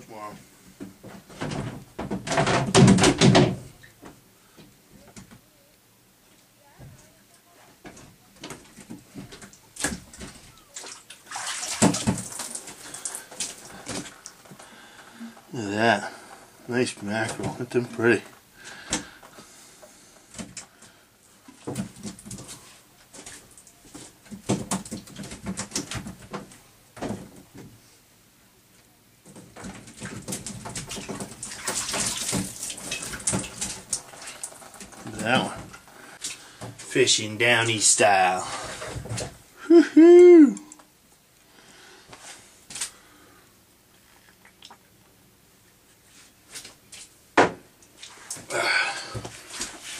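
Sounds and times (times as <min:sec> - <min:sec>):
water splashing and sloshing: 0:08.4 - 0:14.7, 0:29.3 - 0:36.9, 0:38.1 - 0:39.5, 0:47.9 - 0:49.9
fish flapping and slapping: 0:09.4 - 0:14.4, 0:29.6 - 0:35.2.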